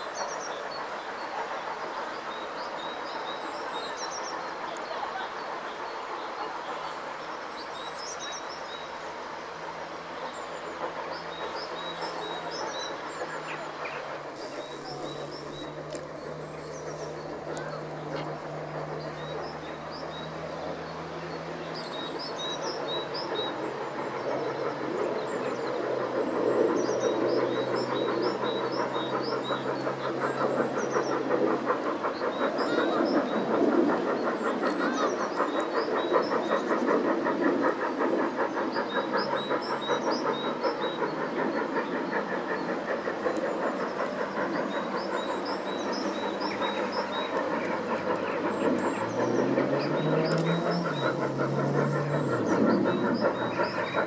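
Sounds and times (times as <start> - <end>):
steam locomotive exhaust beats: 0.0 - 54.0
small birds chirping: 10.2 - 36.9, 38.5 - 54.0.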